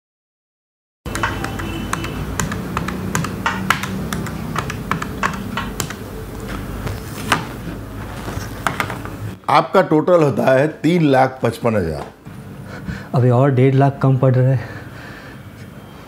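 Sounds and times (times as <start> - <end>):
calculator keys clicking: 1.1 - 6.0.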